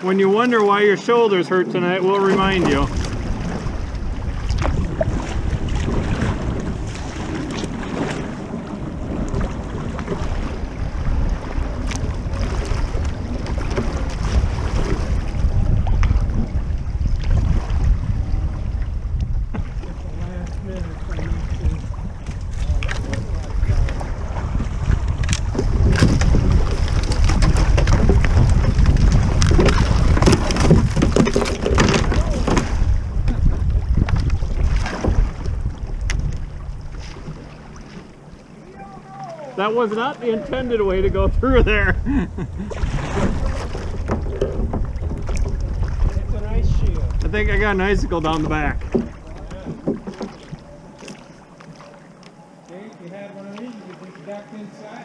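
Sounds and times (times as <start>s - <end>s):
paddle splashes: 0.0s - 55.0s
wind buffeting microphone: 0.8s - 51.0s
river current rushing: 36.5s - 55.0s.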